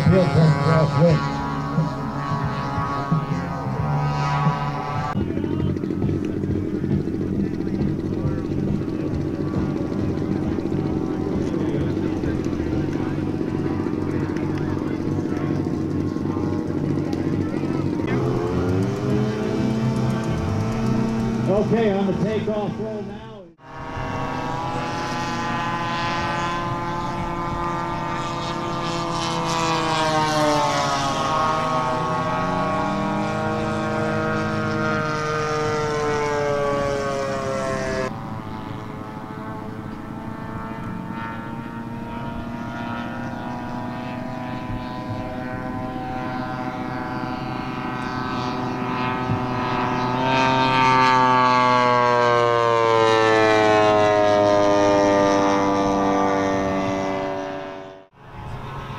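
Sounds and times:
model airplane propeller engines: 0.0 - 58.9.

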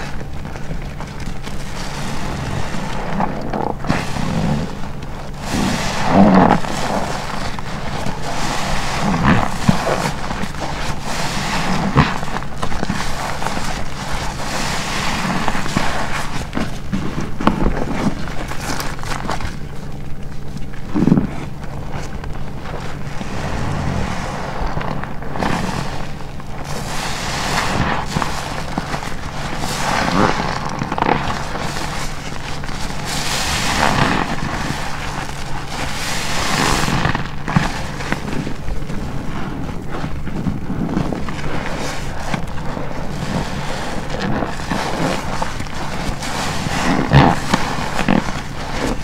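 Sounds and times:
sponge squelching with crackling foam: 0.0 - 49.0.

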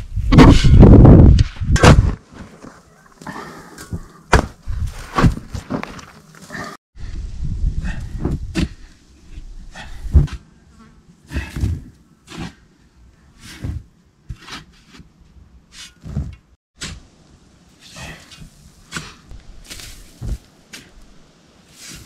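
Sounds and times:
shovel digging sandy soil: 17.8 - 22.0.

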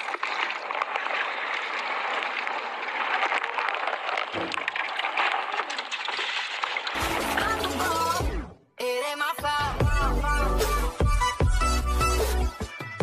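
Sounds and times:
water sloshing around fish: 0.0 - 8.0.

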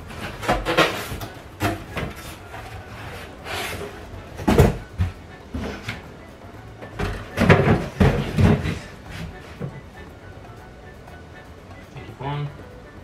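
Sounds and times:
cardboard boxes knocking and scraping: 0.1 - 6.0, 7.0 - 9.8.

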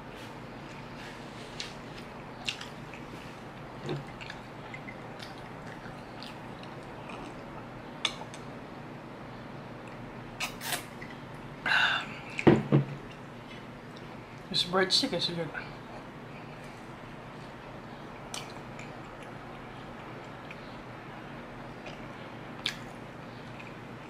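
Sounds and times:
steady background hum: 0.0 - 24.0
mug knocking on wooden table: 12.5 - 12.9.

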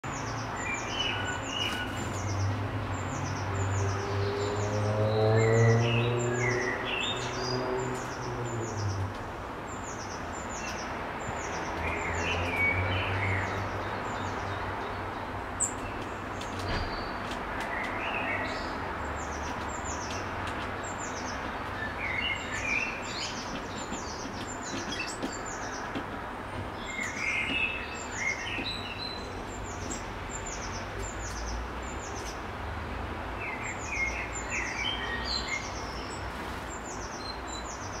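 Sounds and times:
songbirds chirping: 0.0 - 38.0.

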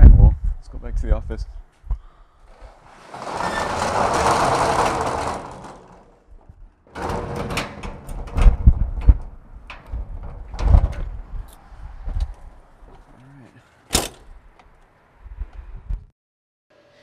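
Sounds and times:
metal roll-up door rattling: 2.5 - 11.5
metal latch clanks: 6.9 - 11.2, 13.9 - 14.3.

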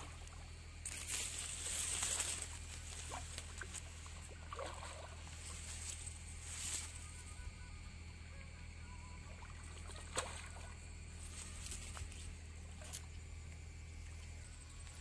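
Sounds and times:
steady low hum: 0.0 - 15.0
fish splashing in water: 3.0 - 5.7, 9.3 - 10.8.

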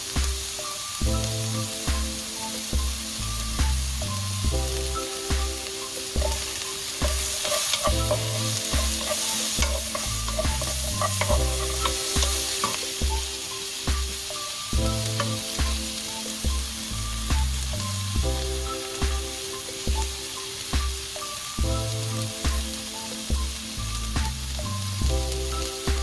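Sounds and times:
background music with beat: 0.0 - 26.0
vegetables sizzling in oil: 0.0 - 26.0
spatula scraping and tapping pan: 6.2 - 13.3, 15.2 - 15.8.

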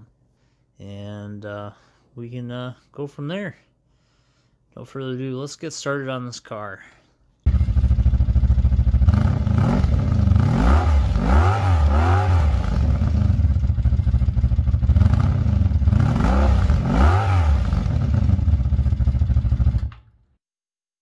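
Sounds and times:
engine revving: 7.5 - 19.9.

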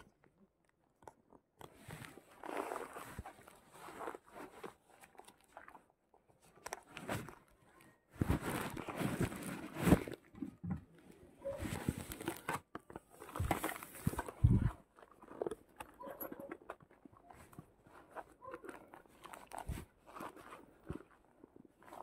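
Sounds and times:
fabric rustling against microphone: 1.6 - 22.0.

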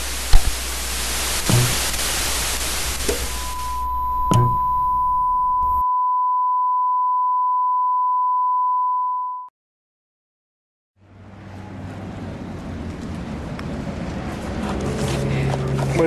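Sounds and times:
static hiss: 0.0 - 5.8
steady test tone: 1.4 - 9.5
brief thump: 1.5 - 1.9, 4.3 - 4.6
outdoor background noise: 11.0 - 16.0.

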